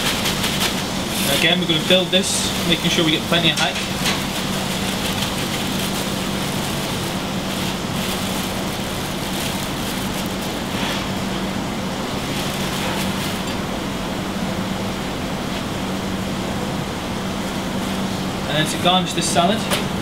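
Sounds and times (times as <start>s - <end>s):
plastic bag crinkling: 0.0s - 11.3s, 12.0s - 13.7s
kitchen extraction hood whooshing: 0.0s - 14.4s
constant low hum: 0.0s - 20.0s.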